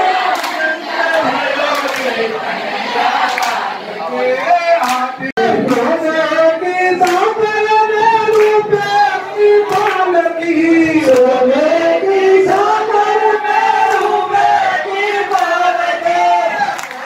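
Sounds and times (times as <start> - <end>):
devotional singing: 0.0 - 17.0
sharp hand claps: 0.3 - 2.2, 3.3 - 3.6, 4.8 - 6.0, 7.0 - 7.4, 8.2 - 10.1, 10.9 - 11.4, 13.8 - 14.2, 15.3 - 15.6, 16.7 - 17.0.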